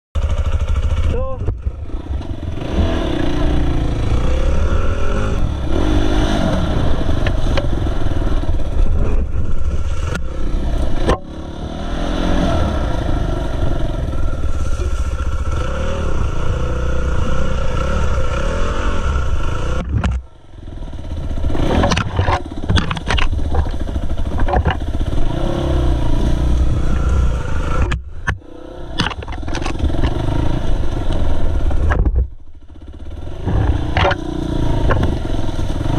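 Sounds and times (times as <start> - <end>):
dirt bike engine revving: 0.2 - 32.0, 32.6 - 35.9.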